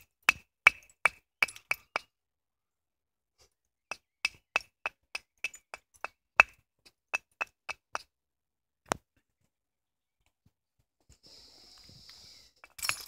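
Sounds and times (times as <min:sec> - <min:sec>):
stone knapping clicking knocks: 0:00.2 - 0:02.1, 0:03.9 - 0:08.1.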